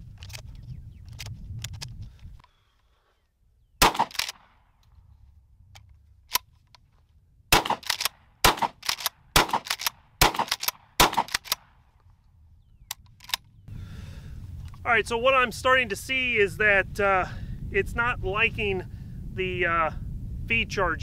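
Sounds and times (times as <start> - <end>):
shotgun shots: 3.8 - 4.6, 7.5 - 11.8
shotgun pump racking clack: 3.9 - 4.4, 7.6 - 11.6.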